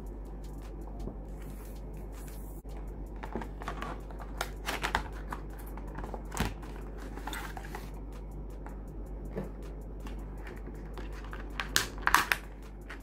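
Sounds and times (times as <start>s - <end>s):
steady low hum: 0.0s - 13.0s
plastic packaging rustling: 3.2s - 8.0s, 10.1s - 13.0s.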